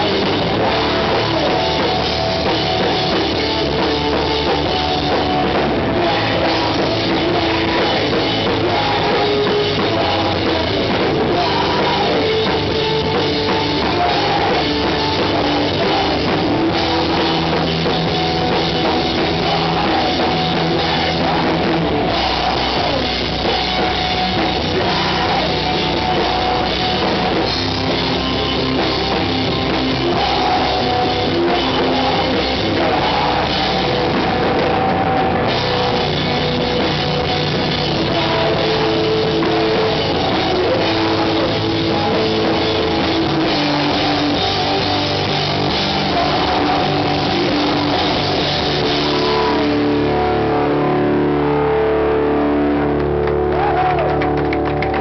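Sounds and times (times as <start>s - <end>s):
rock band playing live: 0.0s - 55.0s.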